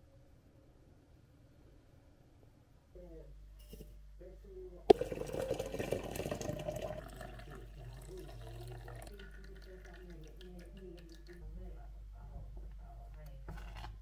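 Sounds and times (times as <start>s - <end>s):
coffee pouring into a mug: 4.9s - 11.6s.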